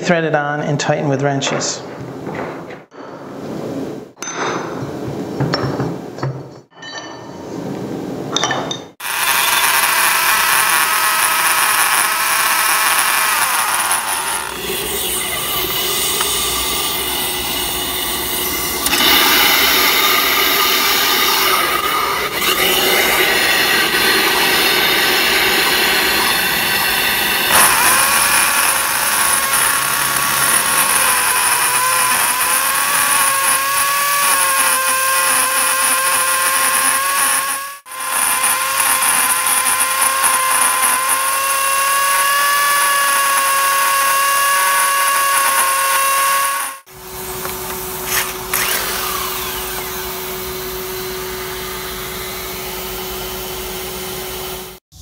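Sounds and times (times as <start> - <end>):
core drill drilling into brick: 9.0 - 53.5
dust extraction vacuum rushing: 9.0 - 54.8.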